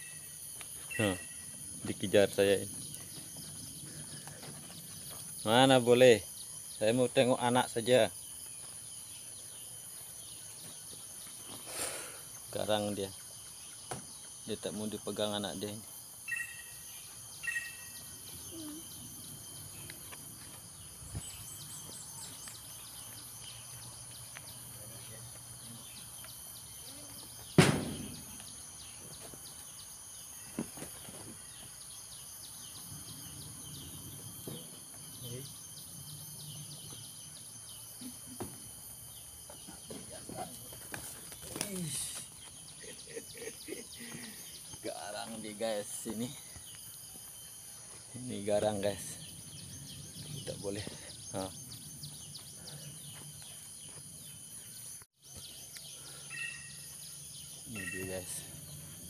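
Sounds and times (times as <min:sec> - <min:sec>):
rapid high chirping calls: 0:00.0 - 0:01.6, 0:16.2 - 0:19.6, 0:56.0 - 0:58.5
high-pitched chirping: 0:00.8 - 0:01.6
loud thump: 0:27.5 - 0:28.4.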